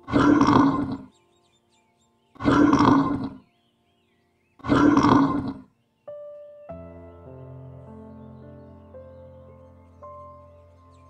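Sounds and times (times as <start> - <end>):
bear roaring: 0.0 - 1.1, 2.4 - 3.4, 4.6 - 5.7.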